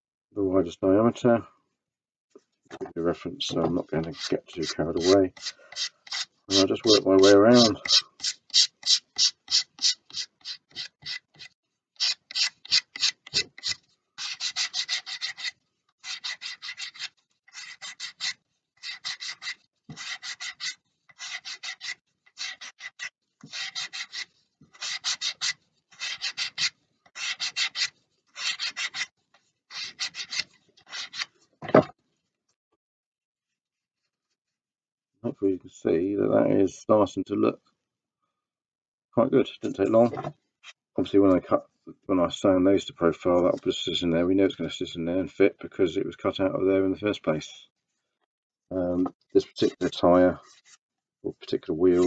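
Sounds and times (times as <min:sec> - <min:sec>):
sandpaper rubbing on wood: 0:03.9 - 0:29.1, 0:29.7 - 0:31.3.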